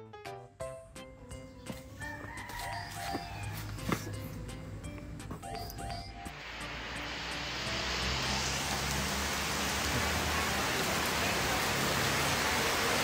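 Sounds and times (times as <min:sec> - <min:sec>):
heavy rain pouring: 0:06.3 - 0:13.0.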